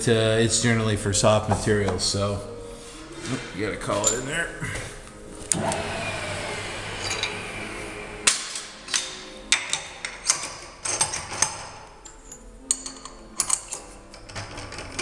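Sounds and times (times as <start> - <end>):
steady machine hum: 5.2 - 9.6
metal clicks and clinks of tooling: 8.9 - 15.0.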